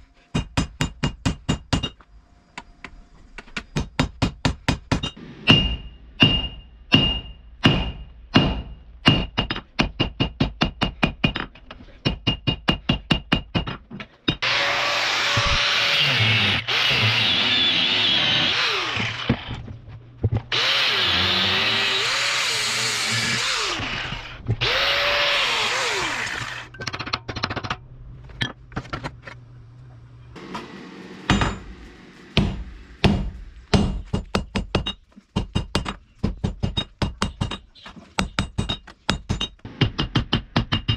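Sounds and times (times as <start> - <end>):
hammer striking steel on anvil: 3.8 - 11.4, 31.3 - 31.8, 32.4 - 36.0
angle grinder cutting steel: 14.4 - 19.5, 20.5 - 26.7.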